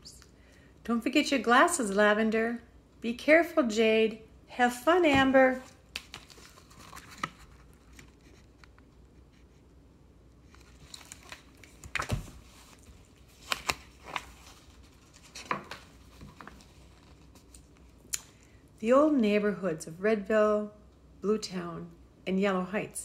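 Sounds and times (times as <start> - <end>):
book pages turning: 5.6 - 9.7, 10.4 - 18.0.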